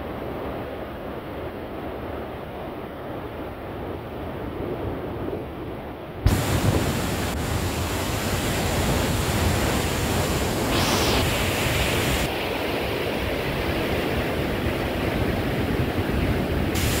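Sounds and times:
river rushing through rapids: 0:06.3 - 0:17.0.

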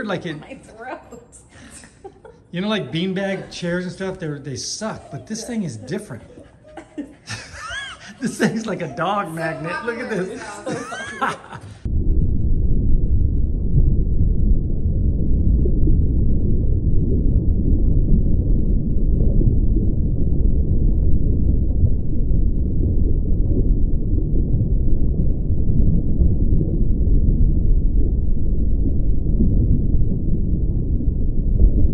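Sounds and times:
muffled low rumbling: 0:11.8 - 0:31.9.

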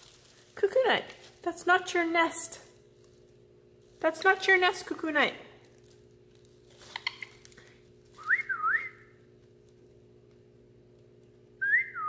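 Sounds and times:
person whistling: 0:08.2 - 0:09.0, 0:11.6 - 0:12.0.

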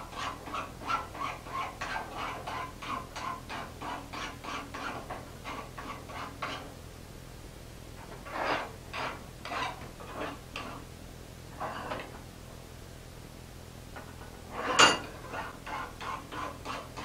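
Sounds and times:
file strokes on metal: 0:00.0 - 0:06.7, 0:08.1 - 0:10.8, 0:14.5 - 0:17.0.

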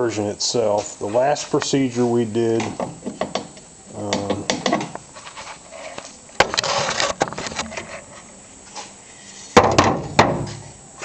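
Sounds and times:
metal scraping on wood: 0:05.2 - 0:08.2.

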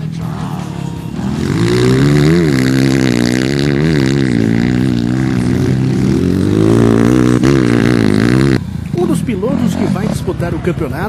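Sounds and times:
dirt bike engine revving: 0:00.0 - 0:10.7.

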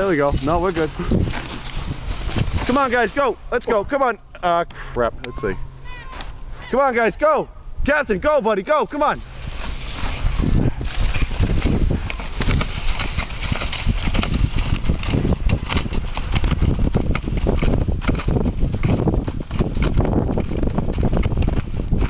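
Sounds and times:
dogs' footfalls on snow: 0:00.0 - 0:03.4, 0:08.7 - 0:18.3
sled clattering and scraping on snow: 0:00.0 - 0:04.2, 0:08.2 - 0:22.0.

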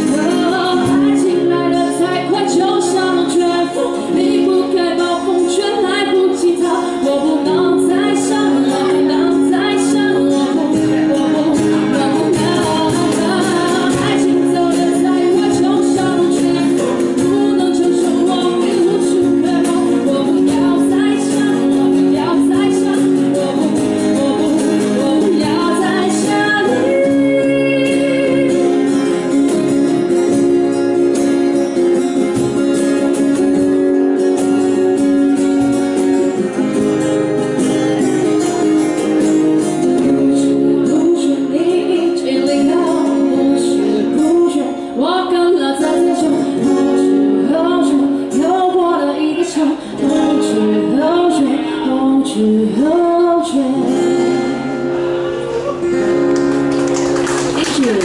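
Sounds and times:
woman singing: 0:00.0 - 0:31.2, 0:39.6 - 0:54.8, 0:57.6 - 0:58.0
strummed acoustic guitars: 0:00.0 - 0:58.0
cajon drumming: 0:08.0 - 0:40.2, 0:55.6 - 0:58.0.

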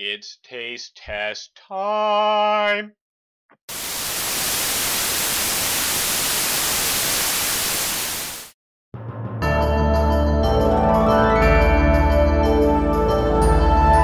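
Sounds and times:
television static hiss: 0:03.7 - 0:08.5.

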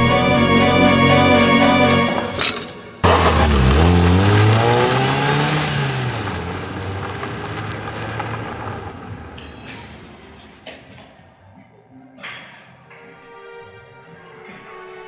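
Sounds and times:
car accelerating away: 0:03.0 - 0:09.5.

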